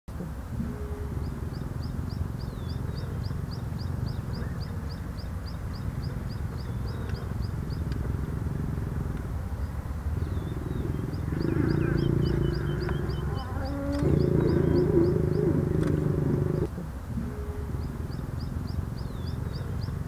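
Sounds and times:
lions growling: 6.1 - 18.8
small bird chirping rapidly: 9.5 - 16.7, 18.1 - 20.0.

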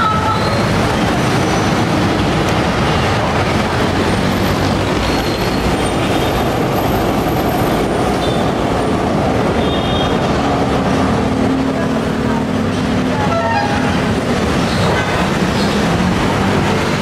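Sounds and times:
motorcycle and car traffic: 0.0 - 17.0
train rumbling overhead: 0.0 - 17.0
high wheel squeals: 4.2 - 8.6.

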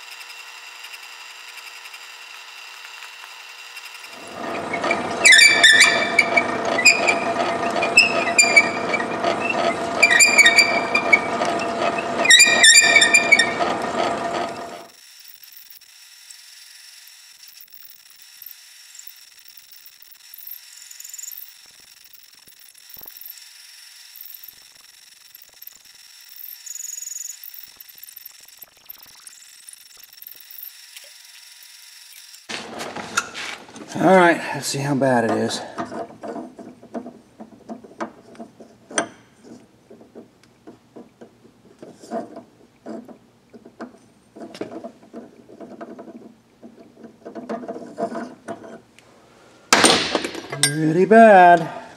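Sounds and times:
cutter squealing: 0.0 - 32.5
metal lathe ringing: 4.2 - 14.9, 50.5 - 51.1.

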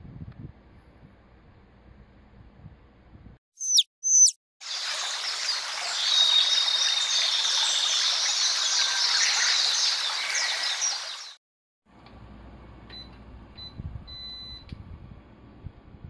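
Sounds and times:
small birds chirping: 3.6 - 11.4.

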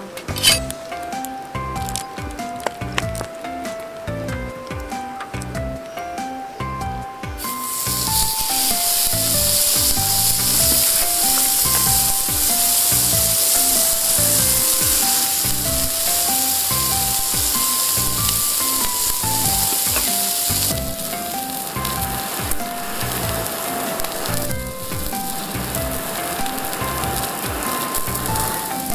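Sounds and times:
background music with steady beat: 0.0 - 28.9
steak sizzling on a griddle: 7.4 - 28.9.

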